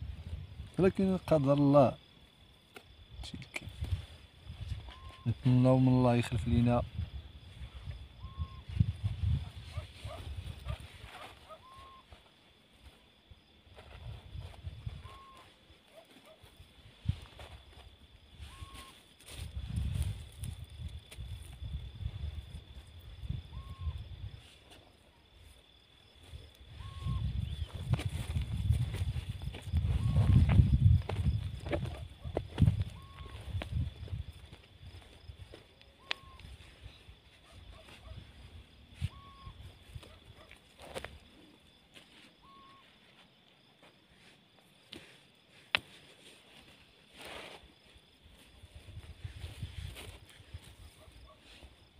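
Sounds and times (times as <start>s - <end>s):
wind rumble: 0.0s - 0.8s, 3.1s - 5.3s, 6.3s - 11.1s, 19.4s - 24.5s, 26.2s - 35.5s
quiet outdoor background: 0.0s - 51.9s
microphone handling noise: 26.8s - 34.4s
hands scraping soil: 44.9s - 48.0s.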